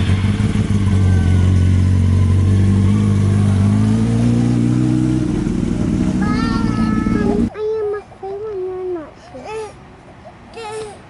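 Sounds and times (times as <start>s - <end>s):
motorcycle engine running: 0.0s - 7.5s.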